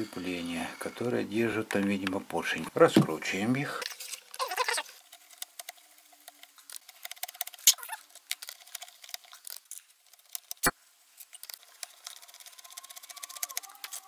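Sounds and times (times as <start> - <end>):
small metallic clicks: 5.2 - 14.0.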